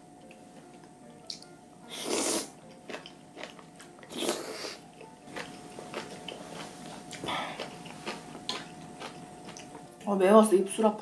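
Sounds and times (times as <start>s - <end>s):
wet chewing: 1.3s - 9.8s
loud slurping: 1.9s - 2.5s.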